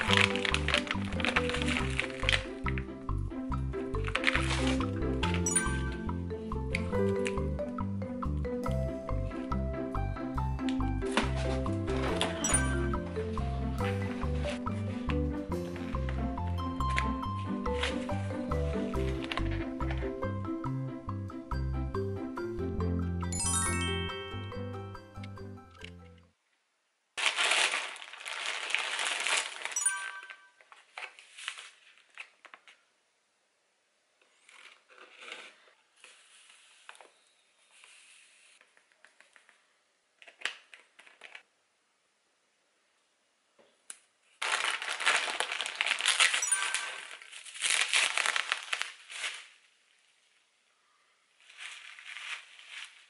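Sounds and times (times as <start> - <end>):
plastic bag crinkling: 0.0 - 2.9, 3.9 - 5.4, 16.8 - 19.9, 27.2 - 32.8, 44.3 - 50.0, 51.4 - 53.0
plastic packaging rustling: 0.0 - 2.9, 3.9 - 5.5, 11.0 - 19.9, 27.2 - 32.9, 34.3 - 41.5, 44.3 - 50.1, 51.4 - 53.0.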